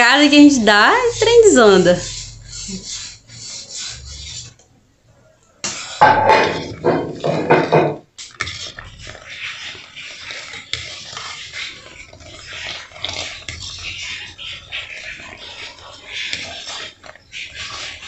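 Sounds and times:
metal spoon scraping a pot: 0.0 - 4.6, 5.6 - 18.0
syrup bubbling: 5.6 - 18.0.

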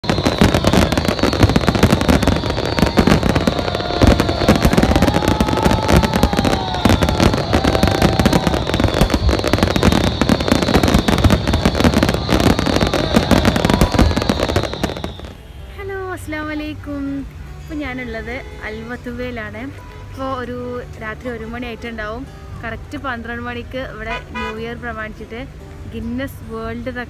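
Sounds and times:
fireworks bangs and crackles: 0.0 - 15.6.

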